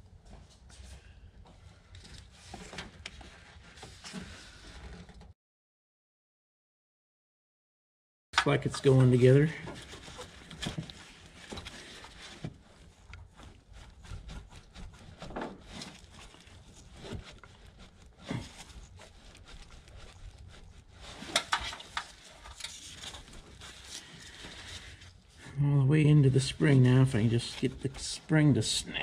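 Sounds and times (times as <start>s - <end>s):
gloved hands clicking and rustling: 9.7s - 25.0s.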